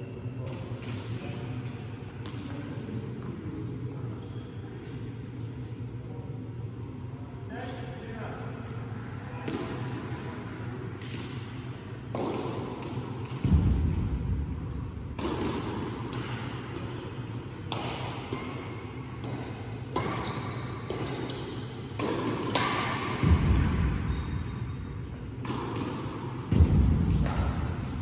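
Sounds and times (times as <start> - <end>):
steady low hum: 0.0 - 28.0
rackets striking shuttlecock: 15.1 - 24.0, 25.3 - 28.0.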